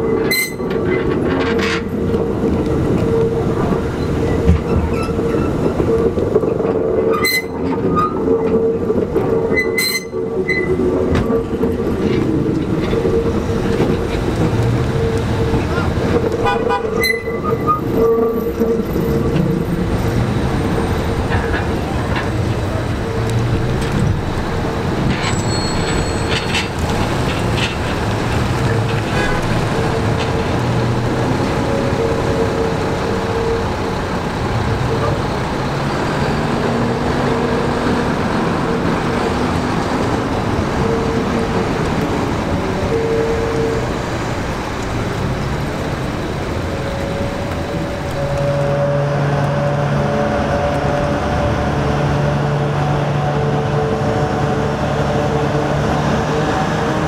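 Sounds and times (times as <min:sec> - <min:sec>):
diesel locomotive engine humming: 0:00.0 - 0:57.0
rumble of train wheels: 0:00.0 - 0:57.0.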